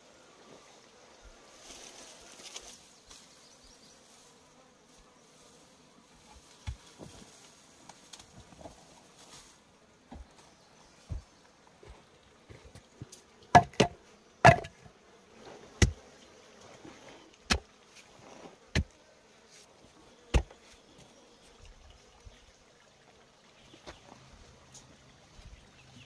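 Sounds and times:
insects buzzing: 0.0 - 26.0
sharp wooden knocks: 13.6 - 14.8.

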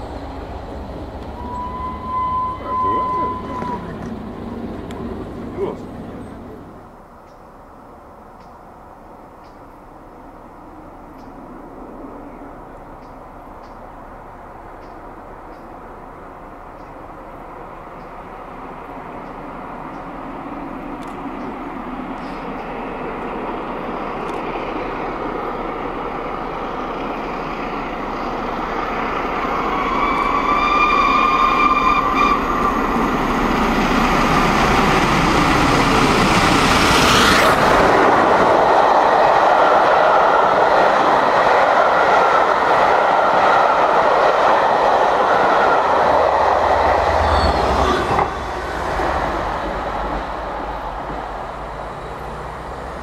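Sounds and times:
steam locomotive exhaust: 0.0 - 6.7, 21.9 - 53.0
train carriages rolling past: 0.0 - 53.0
steam whistle: 1.4 - 3.9, 29.8 - 32.8.

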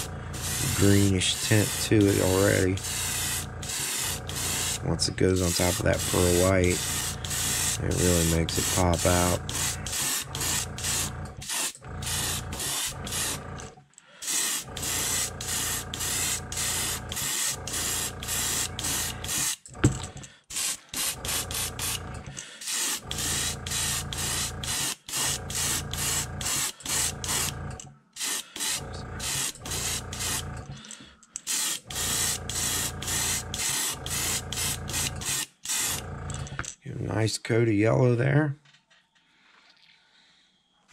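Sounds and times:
airbrush spraying hissing bursts: 0.0 - 13.4, 14.2 - 19.6, 20.5 - 22.0, 22.6 - 27.6, 28.2 - 30.4, 31.5 - 36.0.

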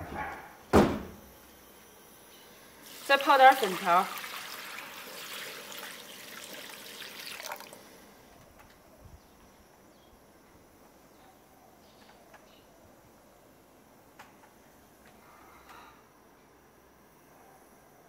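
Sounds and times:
water pouring into a bowl: 2.8 - 7.9.

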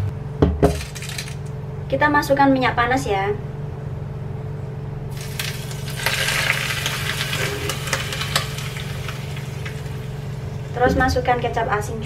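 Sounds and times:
low hum: 3.4 - 12.0
hot oil sizzling and crackling: 5.1 - 10.8.

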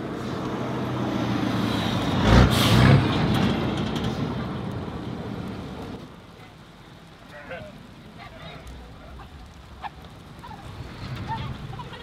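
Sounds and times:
heavy truck passing: 0.0 - 6.0.

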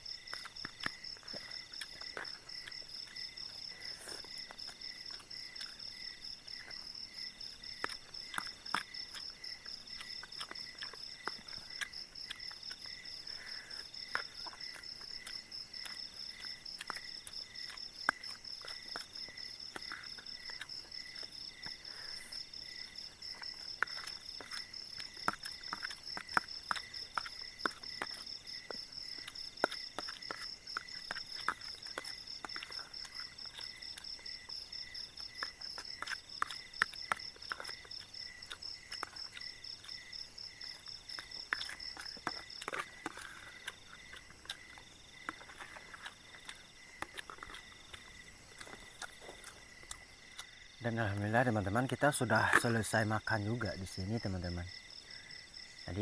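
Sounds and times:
crickets and insects trilling: 0.0 - 56.0
insect calling in phrases: 0.0 - 56.0.

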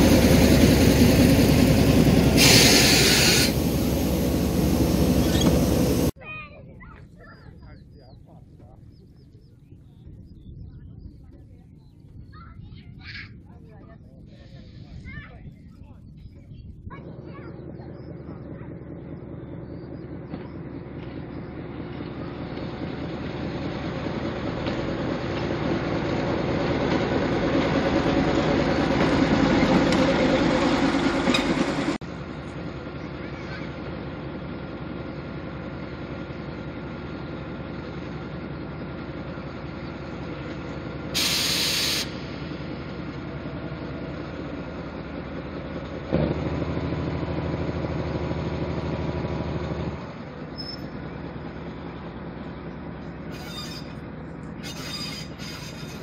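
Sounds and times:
locomotive engine running: 0.0 - 6.2, 13.4 - 56.0
air hiss: 2.4 - 6.1, 41.2 - 42.2.

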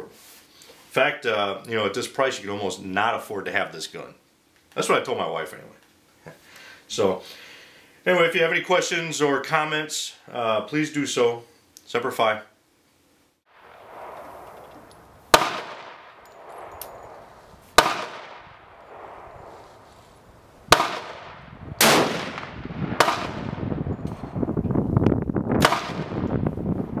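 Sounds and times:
rifle gunshots with echo: 13.6 - 24.3, 25.6 - 26.4
wind buffeting microphone: 13.8 - 27.0.

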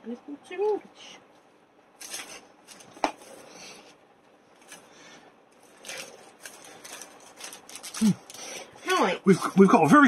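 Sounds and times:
packaging rustling and clicking: 5.6 - 8.4.

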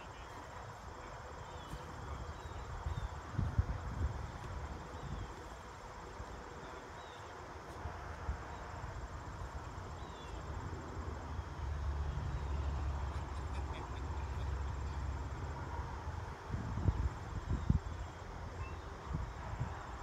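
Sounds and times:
wind rumbling on microphone: 0.5 - 6.4, 15.6 - 20.0
insects trilling: 8.4 - 15.8.

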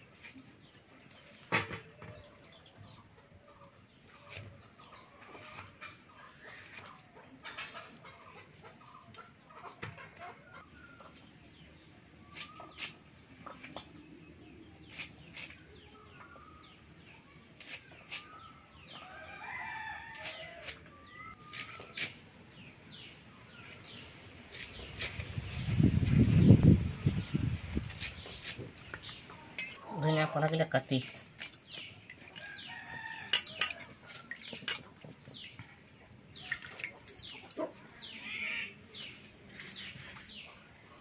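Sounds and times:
chickens clucking: 1.8 - 10.9, 28.7 - 30.6.

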